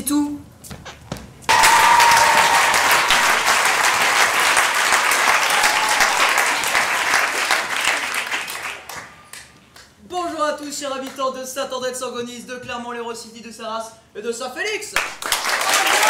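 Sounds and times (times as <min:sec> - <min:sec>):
audience applauding: 0:01.5 - 0:09.5, 0:15.0 - 0:16.0.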